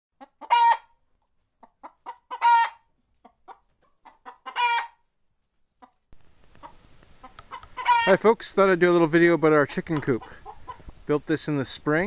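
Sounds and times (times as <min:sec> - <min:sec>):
hen clucking: 0:00.2 - 0:05.1, 0:05.7 - 0:11.6
hen squawking: 0:04.0 - 0:05.0, 0:06.6 - 0:08.3, 0:10.1 - 0:10.9.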